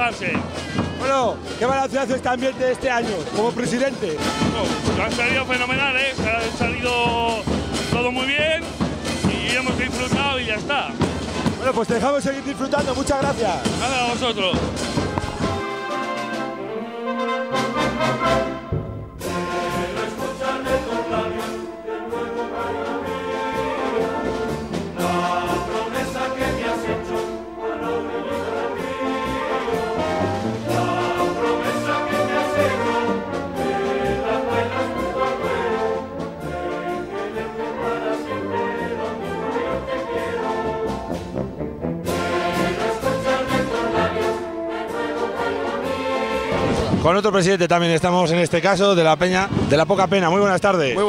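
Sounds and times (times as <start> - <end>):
steady drum beat: 0.0 - 16.5
brass band marching tune: 0.0 - 51.0.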